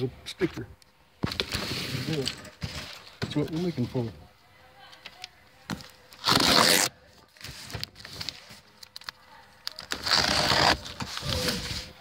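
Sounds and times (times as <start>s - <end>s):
cardboard scraping and rustling: 1.2s - 4.1s, 6.2s - 8.6s, 9.8s - 12.0s
packing tape ripping: 6.2s - 6.9s, 7.8s - 11.6s.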